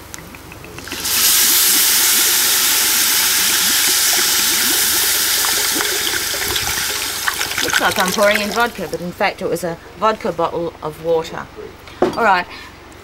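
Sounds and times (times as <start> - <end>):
bubbling in pot: 0.3 - 9.2
water hissing into steam: 0.8 - 9.0.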